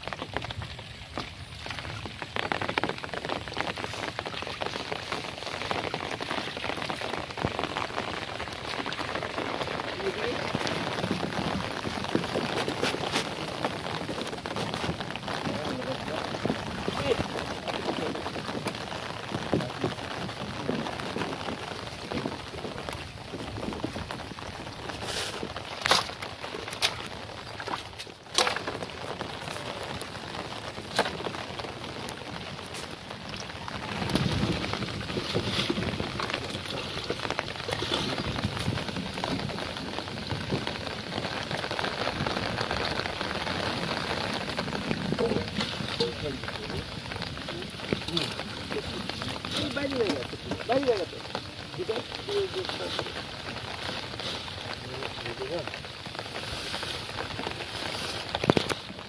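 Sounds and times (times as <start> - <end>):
rain falling on water: 0.0 - 59.0
branches knocking in boat: 10.4 - 31.9, 32.6 - 51.4.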